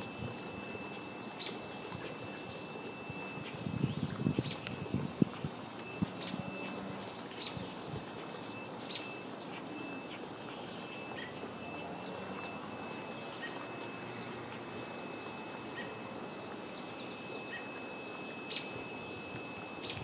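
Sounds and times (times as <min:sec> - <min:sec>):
small birds chirping: 0:00.6 - 0:04.8, 0:08.6 - 0:09.2, 0:14.9 - 0:20.0.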